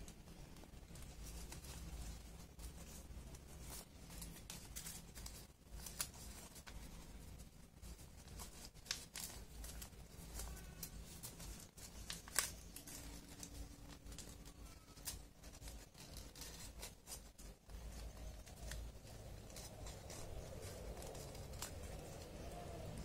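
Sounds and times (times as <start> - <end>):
paper crinkling: 0.0 - 23.0.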